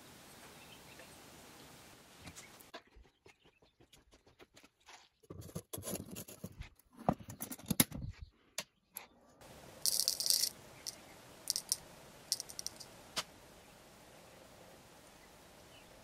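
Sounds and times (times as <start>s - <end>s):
crucible scraping and knocking: 5.3s - 7.9s, 9.8s - 12.9s.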